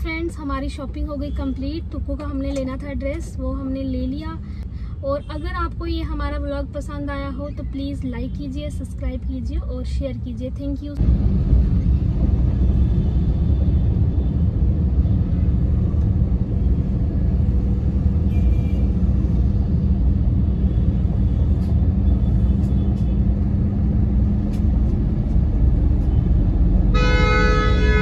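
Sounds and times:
car engine and road noise: 0.0 - 28.0
vehicle horn honking: 26.9 - 28.0.

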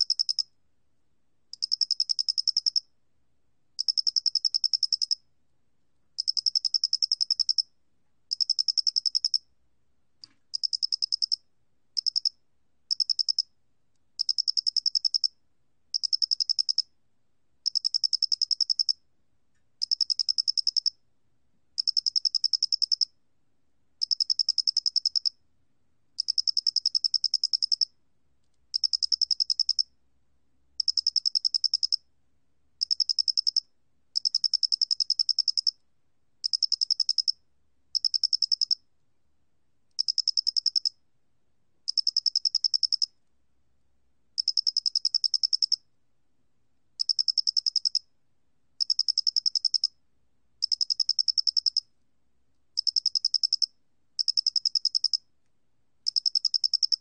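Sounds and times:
cricket trilling: 40.0 - 40.9, 56.1 - 57.0.

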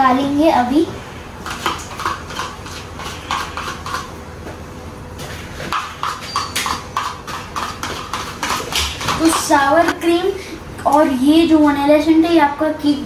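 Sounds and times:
utensil tapping a container: 5.7 - 9.5.

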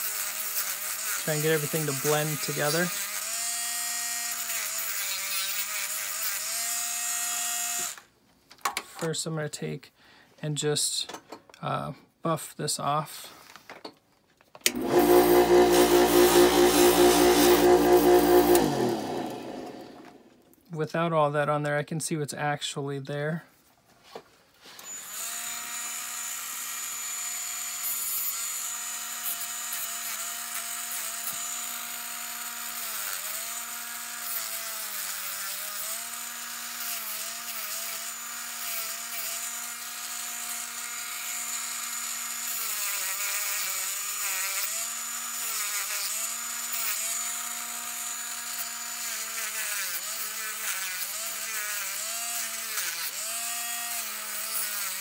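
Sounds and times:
rotary tool whining: 14.6 - 20.3
abrasive bit rasping on metal: 14.7 - 19.8.

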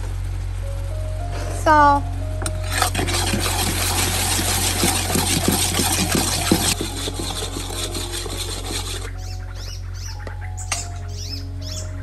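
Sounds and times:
metal ladle scraping pot: 2.6 - 9.3.

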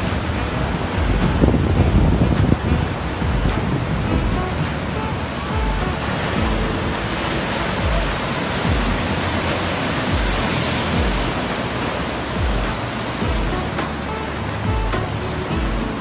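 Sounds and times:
background music with slow bass beat: 0.0 - 16.0
surf breaking over rocks: 0.0 - 16.0.

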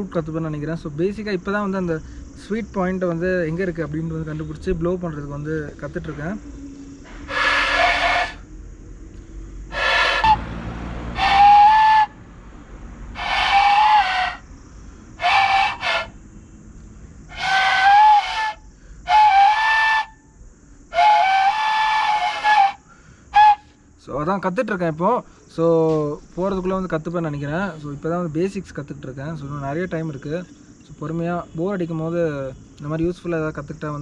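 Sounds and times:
breathy flute notes: 6.4 - 8.5, 9.7 - 12.2, 13.2 - 14.4, 15.2 - 16.2, 17.3 - 20.3, 20.9 - 23.8.

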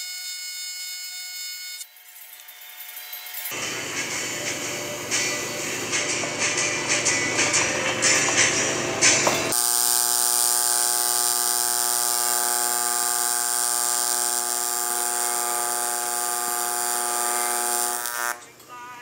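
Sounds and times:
welding arc buzzing: 9.5 - 18.5.

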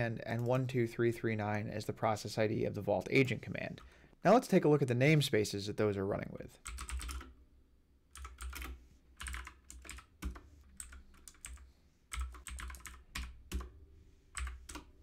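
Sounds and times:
computer keyboard typing: 6.6 - 7.4, 8.1 - 15.0.

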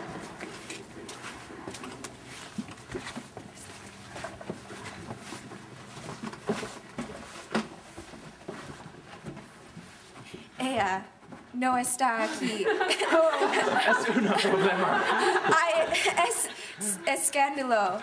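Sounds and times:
shuffling noises: 0.0 - 13.9.

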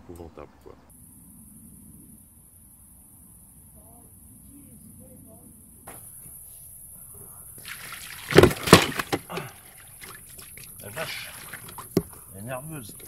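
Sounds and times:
faint chirps: 0.0 - 7.8
water splashing onto plastic mat: 7.6 - 12.1.

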